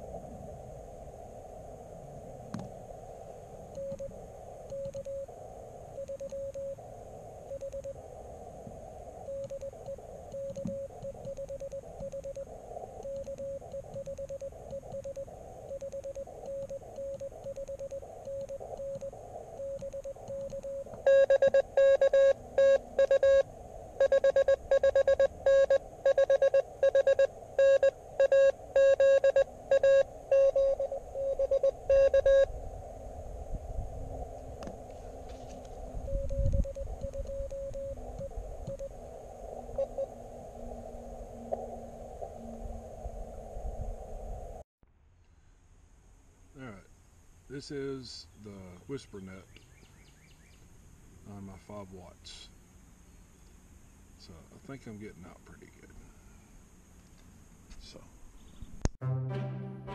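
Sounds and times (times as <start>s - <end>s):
radio receiver hiss: 0.0s - 44.6s, 46.5s - 49.4s
morse code tones: 3.8s - 4.1s, 4.7s - 6.8s, 7.4s - 8.0s, 9.2s - 32.5s, 35.8s - 39.0s, 39.6s - 41.5s.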